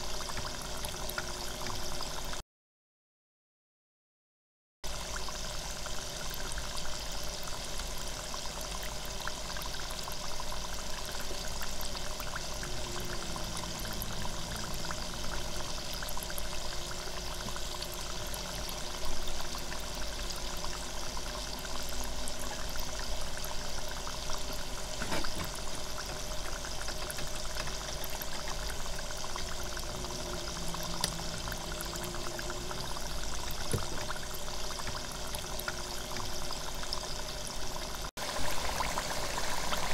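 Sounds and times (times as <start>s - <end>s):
oil sizzling in deep fryer: 0.0s - 2.4s, 4.8s - 39.9s.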